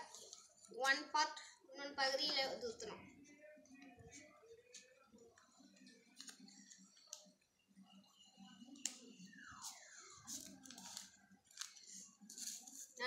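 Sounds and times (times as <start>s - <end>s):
paper crinkling and clicking: 5.9s - 7.3s, 10.3s - 12.9s.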